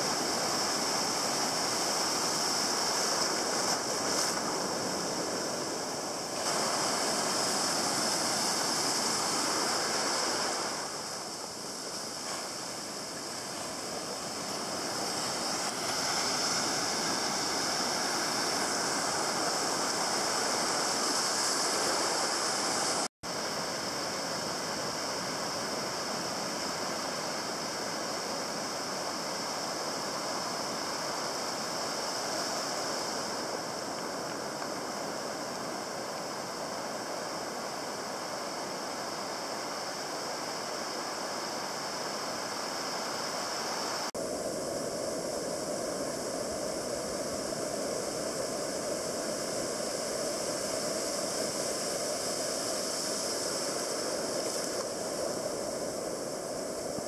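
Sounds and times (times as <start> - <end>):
ocean waves breaking: 0.0 - 27.6.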